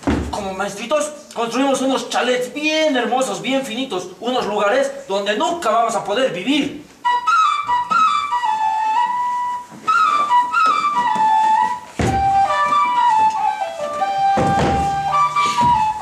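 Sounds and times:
flute melody: 0:07.0 - 0:16.0
low thumps: 0:09.9 - 0:16.0.

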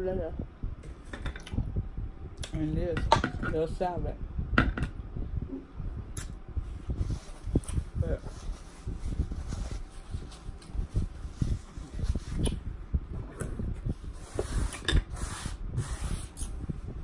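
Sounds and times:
paper napkin rustling: 0:07.0 - 0:12.6.

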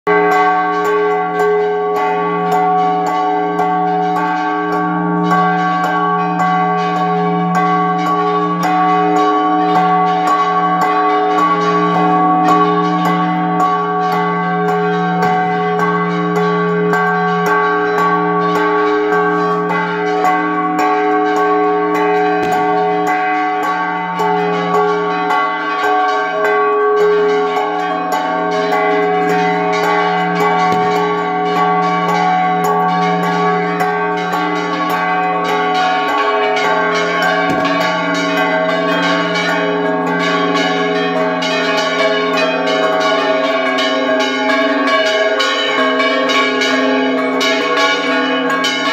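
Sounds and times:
church bells pealing: 0:00.1 - 0:48.9.

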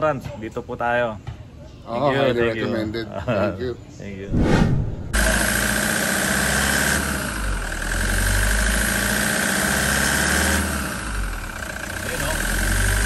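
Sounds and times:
diesel engine idling: 0:05.1 - 0:13.0.

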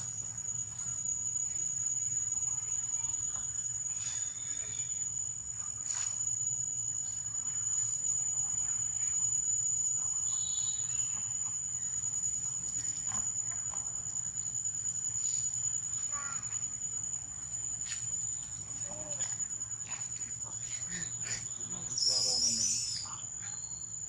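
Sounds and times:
insects droning in trees: 0:00.0 - 0:24.0
high chirp: 0:21.0 - 0:24.0.

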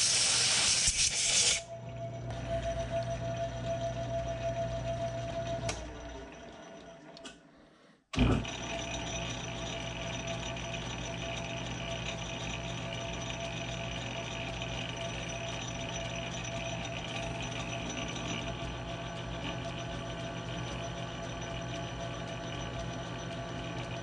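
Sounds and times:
metal lathe running: 0:08.2 - 0:24.0.

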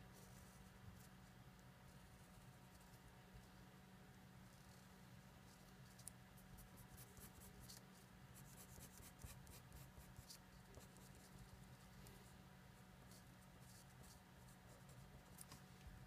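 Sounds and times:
marker scratching on paper: 0:08.4 - 0:11.4.

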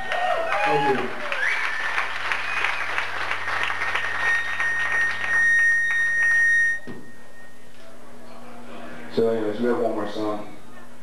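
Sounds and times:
audience applauding: 0:00.0 - 0:06.4
amplifier feedback whine: 0:02.9 - 0:08.2.

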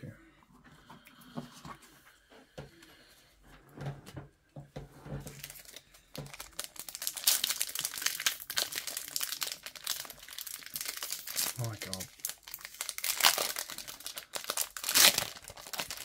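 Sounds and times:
wrapper crinkling and tearing: 0:05.3 - 0:16.0.

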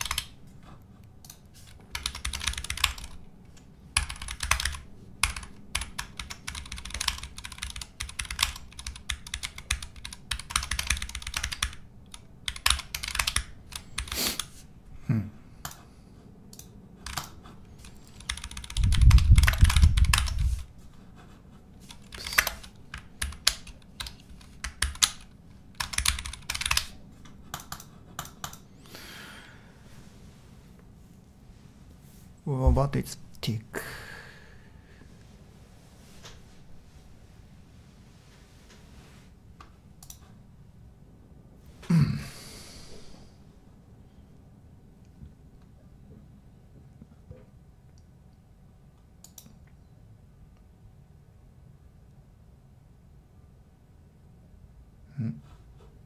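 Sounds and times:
typing on computer keyboard: 0:00.0 - 0:00.4, 0:01.2 - 0:03.2, 0:04.0 - 0:14.5, 0:16.6 - 0:20.4, 0:21.8 - 0:26.9, 0:27.5 - 0:28.6.

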